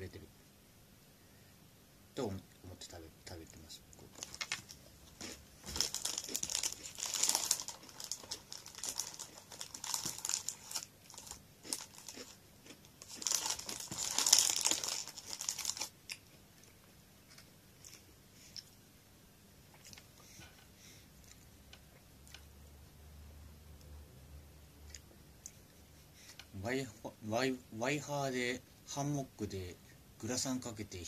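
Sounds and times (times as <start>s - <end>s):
foil bag crinkling: 4.1s - 12.4s, 13.0s - 15.9s.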